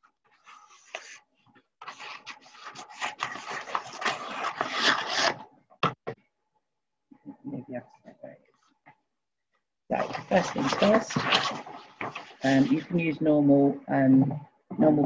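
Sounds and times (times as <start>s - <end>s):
scissors cutting wallpaper: 1.8s - 5.4s.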